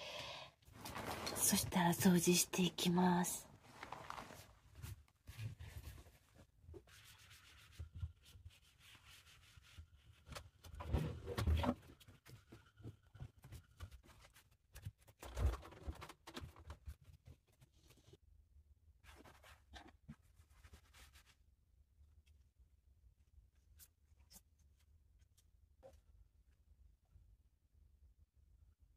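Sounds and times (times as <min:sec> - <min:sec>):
rubbing and shuffling: 0:00.7 - 0:02.2, 0:03.4 - 0:10.8.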